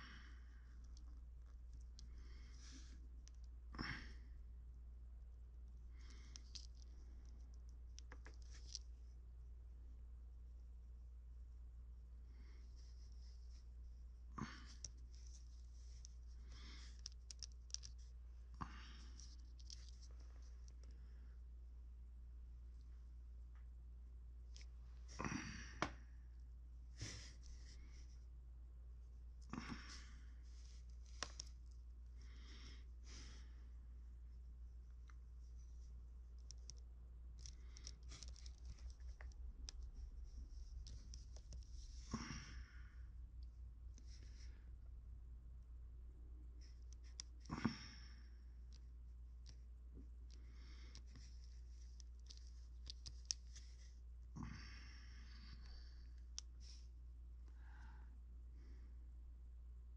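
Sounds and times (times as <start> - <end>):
low hum: 0.0 - 59.9
soft rustles: 12.4 - 21.3, 34.3 - 42.6.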